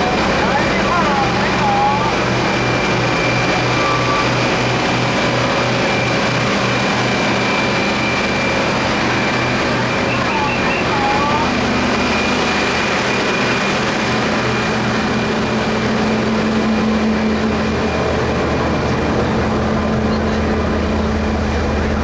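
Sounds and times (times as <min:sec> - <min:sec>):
crowd chatter: 0:00.0 - 0:04.7, 0:10.0 - 0:11.9, 0:17.6 - 0:22.0
diesel engine idling: 0:00.0 - 0:22.0.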